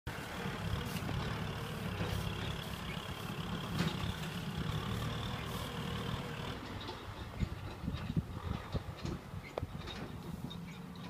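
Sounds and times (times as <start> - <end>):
tractor diesel engine running: 0.1 - 11.0
faint clatters: 0.6 - 11.0.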